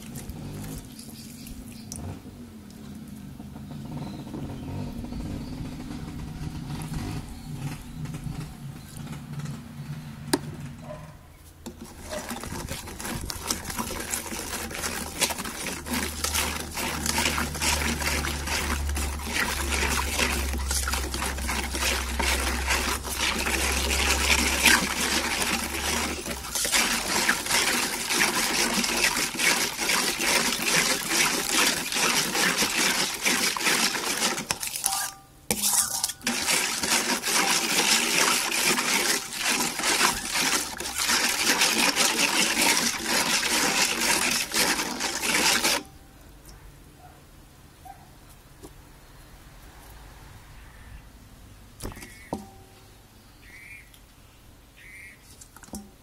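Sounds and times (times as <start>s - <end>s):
liquid sloshing: 0.0s - 2.0s, 11.6s - 45.9s
low rumble: 3.2s - 10.9s
metal spoon clinking in steel bowl: 34.8s - 36.3s.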